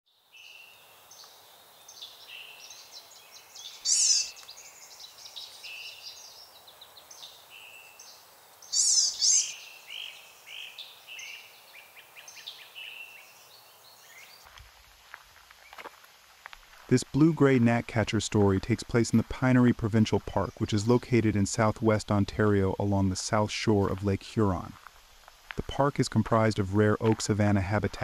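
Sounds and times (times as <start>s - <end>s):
wild birds singing and calling: 0.3s - 14.5s, 19.6s - 23.4s
rapid bird trill: 3.4s - 6.3s, 8.7s - 13.2s.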